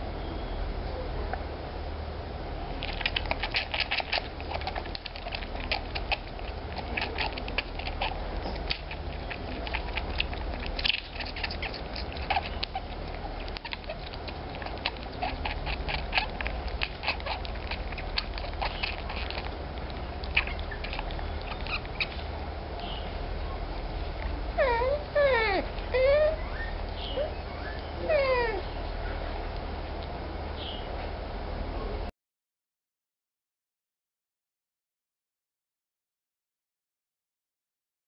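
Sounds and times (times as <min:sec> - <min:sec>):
baby otter squeaking and clicking: 0:02.8 - 0:22.4, 0:24.6 - 0:28.8.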